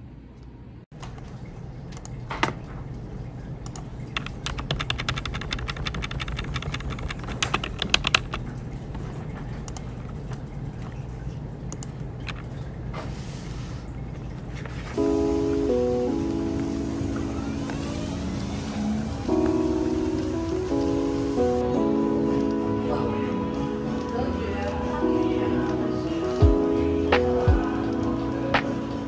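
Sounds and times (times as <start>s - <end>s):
keyboard key clicks: 3.7s - 8.5s
low hum: 13.8s - 28.6s.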